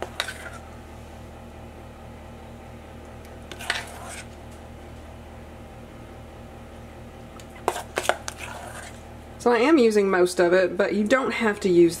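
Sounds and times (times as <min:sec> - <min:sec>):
spoon scraping metal bowl: 0:00.0 - 0:00.6, 0:03.5 - 0:04.4, 0:07.6 - 0:09.0
steady low hum: 0:00.0 - 0:12.0.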